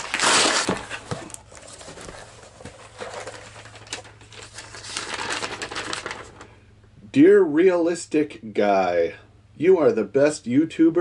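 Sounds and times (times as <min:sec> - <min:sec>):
cardboard and paper rustling: 0:00.0 - 0:06.5.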